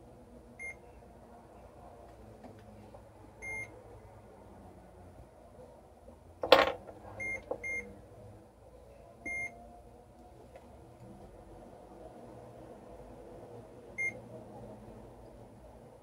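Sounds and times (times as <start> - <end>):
chess pieces knocking on board: 6.4 - 7.0.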